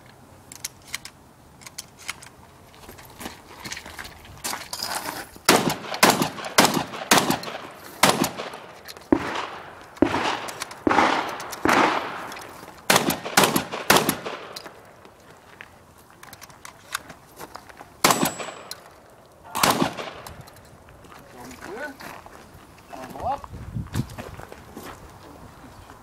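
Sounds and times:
shotgun shots echoing: 5.5s - 14.9s, 18.0s - 20.4s.

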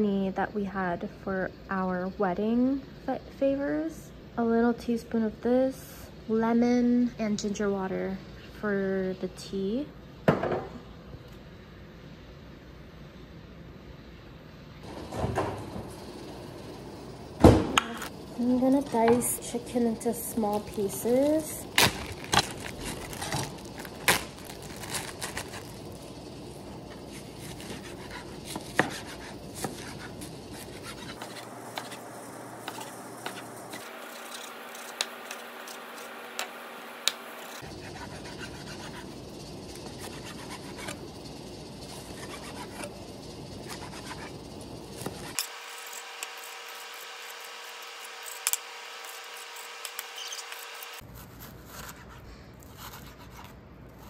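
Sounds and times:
crinkling plastic bag: 20.4s - 26.2s.

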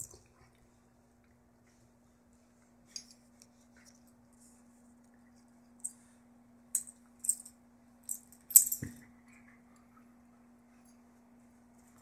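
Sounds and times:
faint steady hum: 0.0s - 12.0s
dog collar tags jingling: 6.8s - 7.5s, 8.1s - 8.9s.

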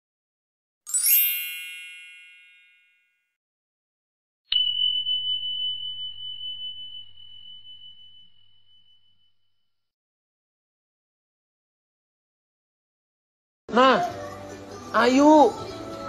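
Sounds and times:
shimmering chime: 0.9s - 3.1s, 4.5s - 9.5s
high bell ding: 0.9s - 3.3s, 4.5s - 9.6s.

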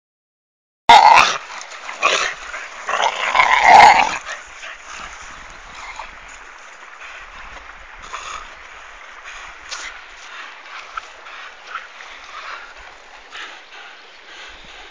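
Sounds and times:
dogs vocalising while play-fighting: 0.9s - 6.2s.

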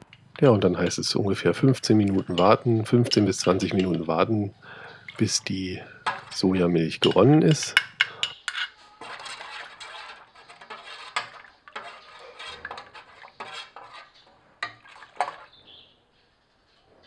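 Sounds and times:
spoon scraping metal pot: 0.1s - 15.5s.

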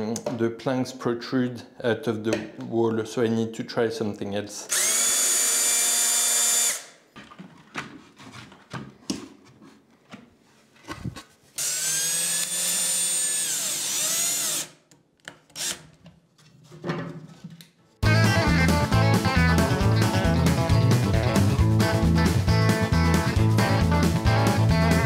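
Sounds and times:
cordless drill whining: 4.7s - 7.0s, 11.6s - 14.8s, 15.6s - 15.8s.

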